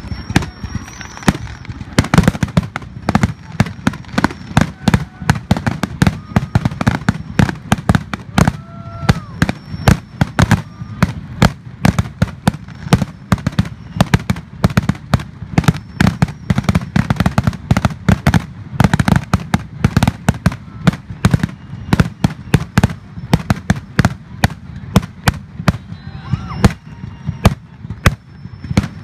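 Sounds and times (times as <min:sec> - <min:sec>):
fireworks cracking and booming: 0:00.0 - 0:29.0.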